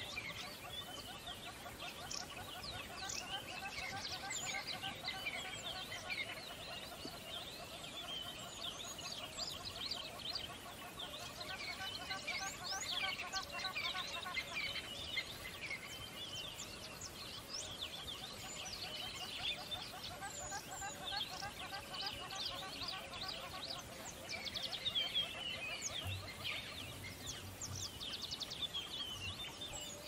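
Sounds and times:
chorus of birds singing: 0.0s - 30.0s.

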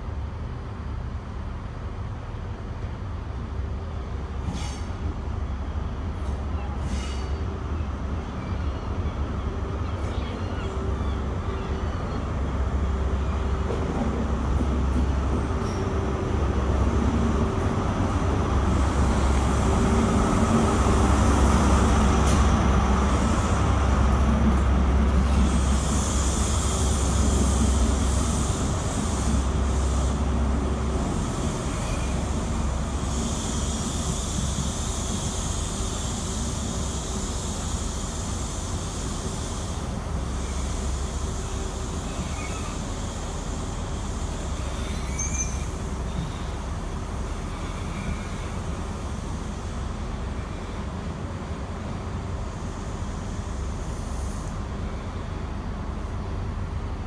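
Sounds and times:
diesel train engine rumbling: 0.0s - 57.0s
train coaches rolling on rails: 0.0s - 57.0s
high-pitched wheel squeal: 42.0s - 42.9s, 44.6s - 46.5s.

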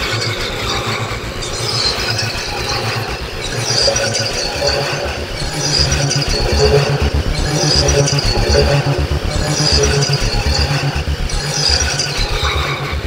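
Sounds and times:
harsh squealing synth noise: 3.4s - 13.0s
distorted acid bass line: 3.6s - 13.0s.

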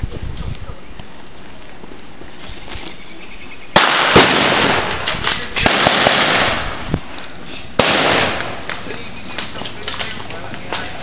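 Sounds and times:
blank gunshots: 3.8s - 6.8s, 7.8s - 8.9s.

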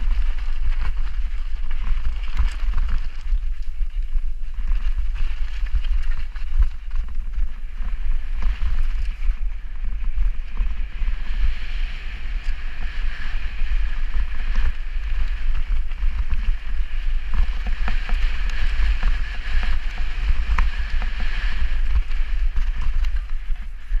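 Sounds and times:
bike tyres rolling over dirt: 0.0s - 24.0s
wind buffeting microphone: 0.0s - 24.0s
bike knocks and rattles: 14.0s - 23.9s.

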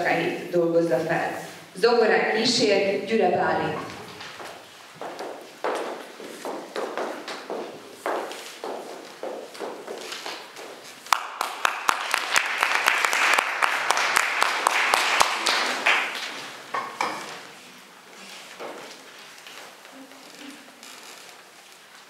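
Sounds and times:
footsteps on wooden stage: 3.4s - 11.3s
audience applauding: 11.0s - 16.7s.

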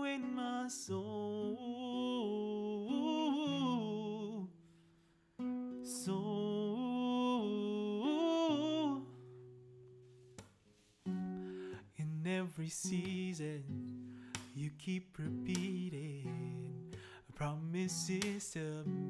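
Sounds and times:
classical guitar: 0.0s - 19.0s.

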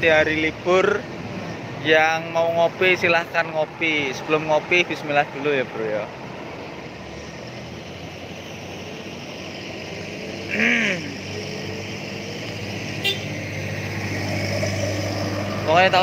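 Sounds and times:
rising and falling vocal sound: 10.3s - 12.6s.

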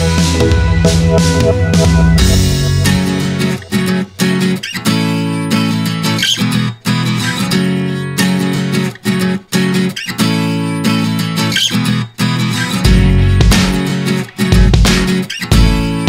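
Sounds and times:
strummed guitar chords: 0.0s - 6.2s.

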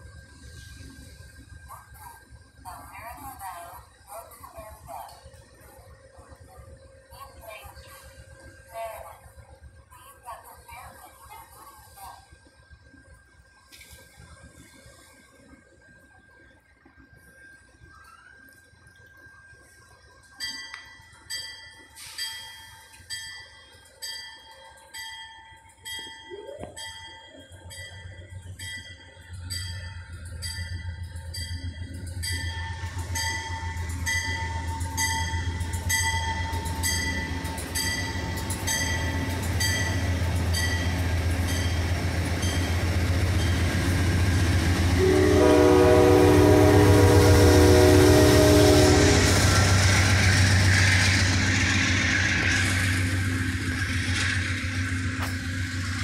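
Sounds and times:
train rumble: 0.0s - 56.0s
train bell ringing: 20.2s - 56.0s
train horn chord: 44.3s - 50.6s.

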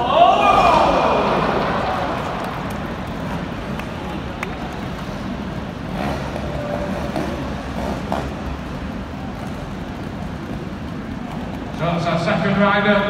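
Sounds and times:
indoor arena crowd murmur: 0.0s - 13.0s
motorcycle engine revving: 5.7s - 8.7s.

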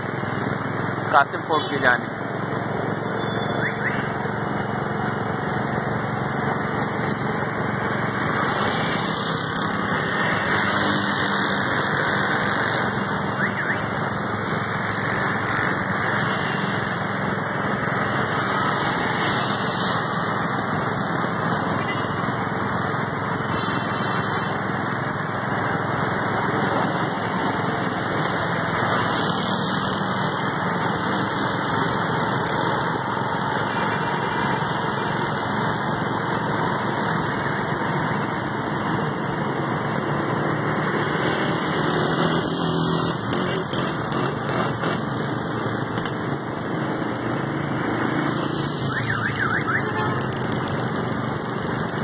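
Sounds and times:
road noise: 0.0s - 52.0s.

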